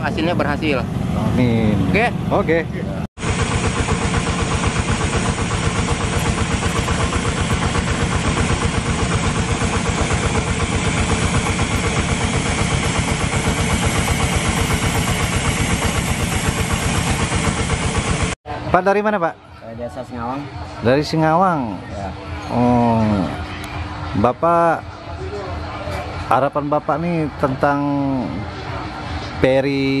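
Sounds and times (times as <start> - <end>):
water pump engine running: 3.2 - 18.4.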